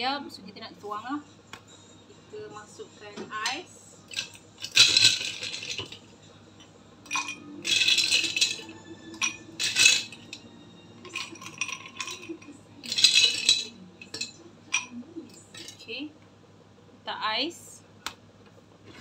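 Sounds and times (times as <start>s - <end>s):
ice cubes clinking against glass: 4.1s - 6.0s, 7.1s - 10.4s, 11.0s - 15.8s.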